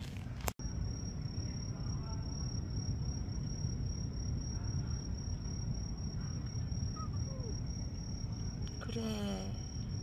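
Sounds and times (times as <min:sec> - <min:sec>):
low background rumble: 0:00.0 - 0:10.0
insect trilling: 0:04.4 - 0:10.0.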